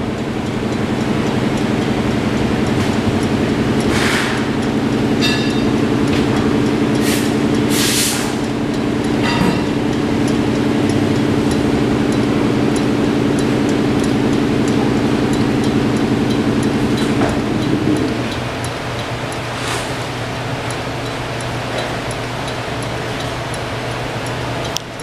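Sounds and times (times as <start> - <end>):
spinning wheel rim whirring: 0.0 - 25.0
short hiss bursts: 7.0 - 8.4.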